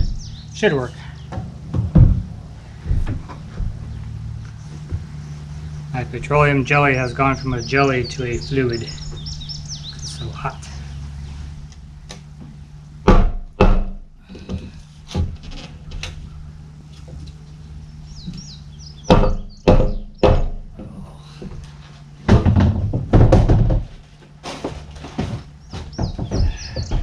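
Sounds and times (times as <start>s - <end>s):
scraping knocks: 0.0s - 27.0s
hollow knocks in plastic tank: 1.3s - 3.8s, 19.1s - 20.8s, 22.3s - 24.0s.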